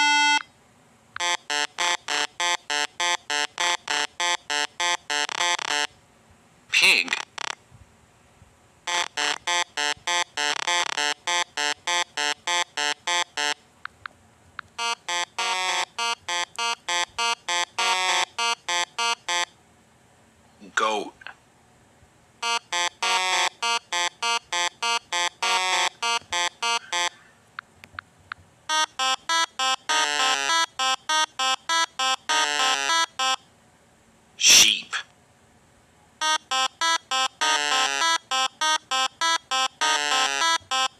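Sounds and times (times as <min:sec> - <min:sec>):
short electronic beeps: 0:01.2 - 0:05.9, 0:08.9 - 0:13.6, 0:14.8 - 0:19.5, 0:22.4 - 0:27.2, 0:28.7 - 0:33.4, 0:36.2 - 0:40.9.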